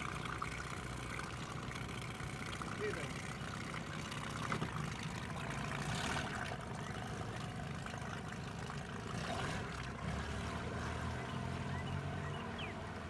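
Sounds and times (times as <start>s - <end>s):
outboard motor running: 0.0s - 13.0s
water lapping and trickling: 0.0s - 13.0s.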